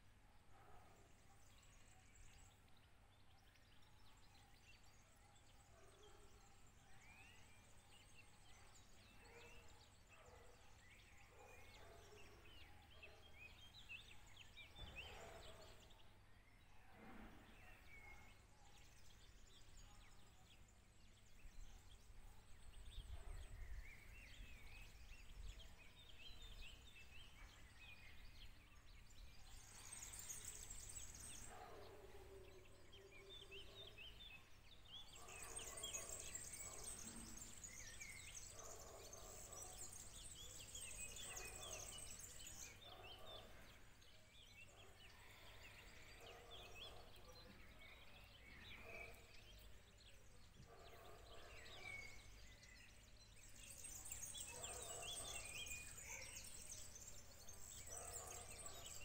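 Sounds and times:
birds chirping: 21.6s - 44.0s, 44.6s - 59.0s.

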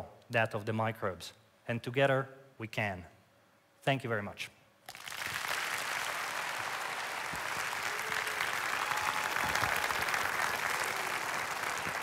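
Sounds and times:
audience applauding: 4.9s - 12.0s.

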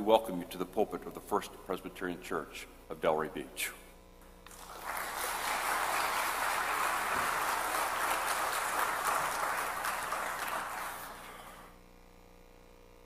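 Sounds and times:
crowd applauding: 4.5s - 11.7s.

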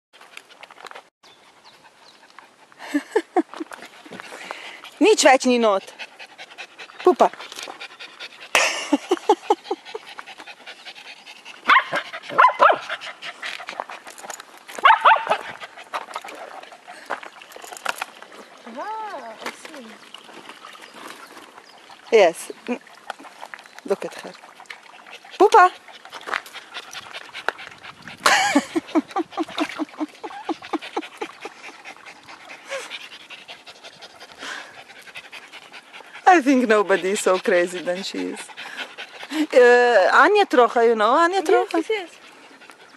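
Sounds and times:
dog panting: 1.4s - 18.0s, 24.2s - 42.9s
faint splashing: 3.8s - 42.9s
dog huffing: 26.2s - 39.6s.

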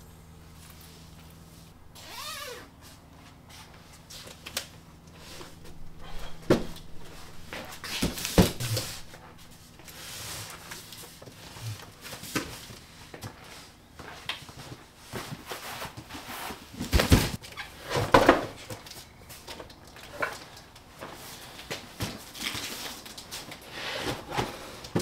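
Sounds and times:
cardboard boxes scuffing on concrete: 5.2s - 19.6s, 21.0s - 25.0s
boxes thumping on concrete floor: 5.6s - 9.5s, 16.8s - 18.8s.

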